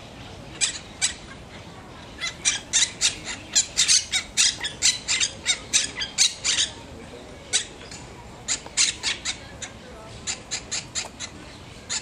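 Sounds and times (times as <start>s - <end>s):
parakeet squawking: 2.2s - 6.8s, 7.5s - 12.0s.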